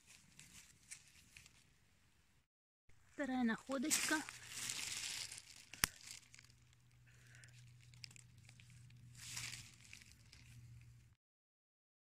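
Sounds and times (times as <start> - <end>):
rustling of leaves: 0.0 - 1.7, 3.4 - 11.1.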